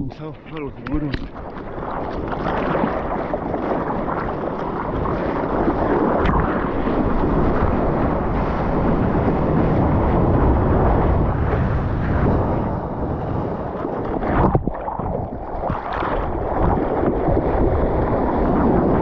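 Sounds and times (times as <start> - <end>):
arm paddling splashes: 0.6 - 7.7.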